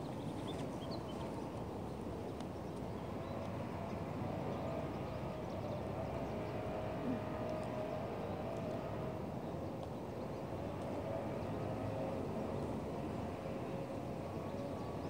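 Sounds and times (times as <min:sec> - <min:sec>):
low outdoor background rumble: 0:00.0 - 0:15.0.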